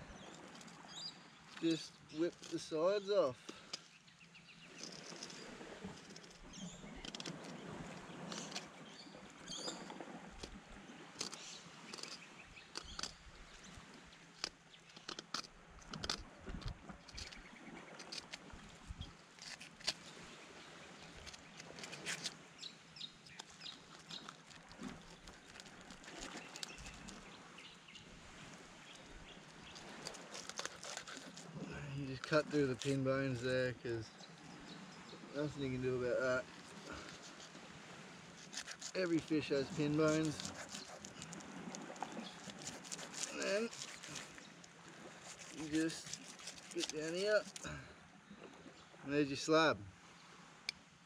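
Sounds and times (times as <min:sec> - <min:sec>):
knife cutting through fish: 0:29.8 - 0:31.6, 0:38.4 - 0:47.6.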